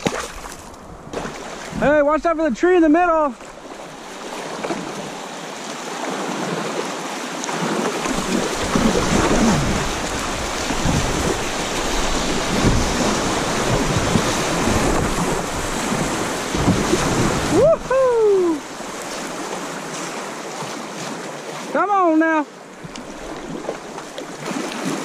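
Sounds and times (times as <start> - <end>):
river water rushing: 0.0 - 25.0
wind rumble on microphone: 8.1 - 18.4.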